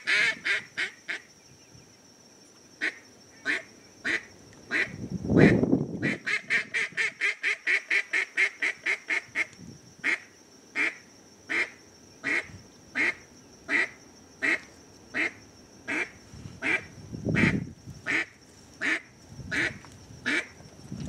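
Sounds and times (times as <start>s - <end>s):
duck call quacks: 0.0s - 0.9s, 3.5s - 9.5s.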